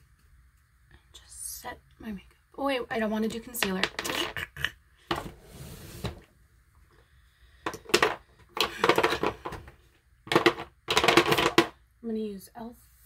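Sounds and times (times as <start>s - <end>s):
plastic makeup items clattering: 7.7s - 11.8s.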